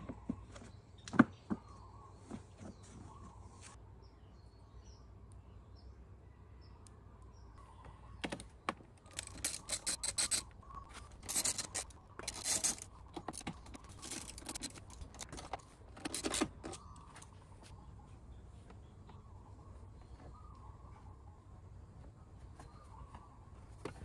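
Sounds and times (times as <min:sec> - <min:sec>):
faint bird chirps: 0:00.0 - 0:15.2, 0:16.6 - 0:24.0
socket ratchet clicking: 0:09.1 - 0:10.5.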